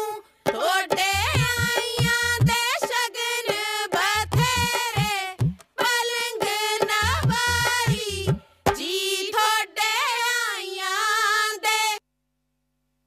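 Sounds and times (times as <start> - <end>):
women singing folk song: 0.0 - 12.0
drum beats: 0.5 - 8.9.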